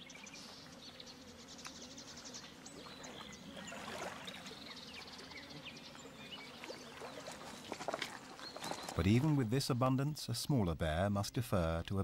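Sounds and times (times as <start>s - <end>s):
water lapping against stones: 2.9s - 4.6s, 6.4s - 9.4s.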